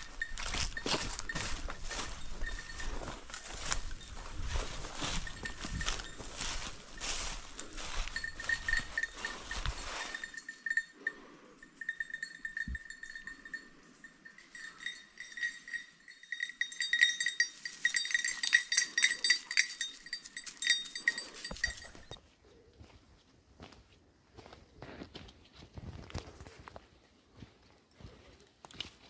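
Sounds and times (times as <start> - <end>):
small metal bell jingling: 0.0 - 22.2.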